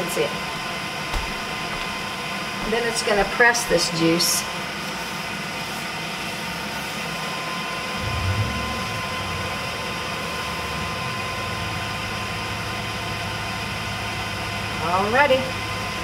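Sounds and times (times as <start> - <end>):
thin steady whine: 0.0 - 16.0
low hum: 7.9 - 14.2.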